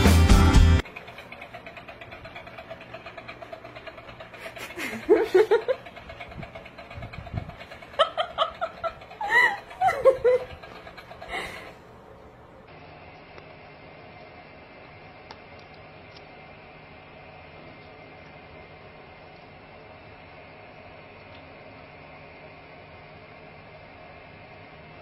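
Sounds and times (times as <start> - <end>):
rapidly pulsing mechanical hum: 0.0 - 25.0
person laughing: 4.4 - 5.9, 7.7 - 11.8.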